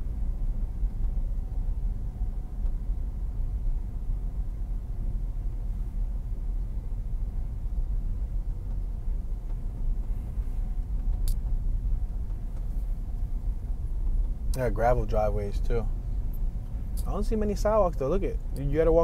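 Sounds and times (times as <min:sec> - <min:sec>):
car rumble inside cabin: 0:00.0 - 0:19.0
sharp click: 0:11.1 - 0:11.5.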